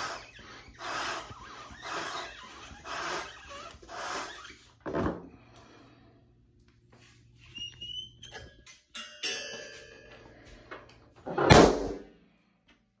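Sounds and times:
plastic balloon squeaking: 0:00.0 - 0:05.0, 0:06.9 - 0:08.7.

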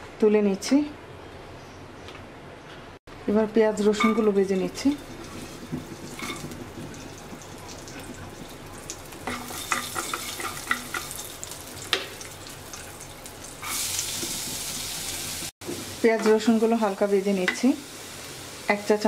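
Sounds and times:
garlic sizzling in oil: 0:03.8 - 0:19.0.

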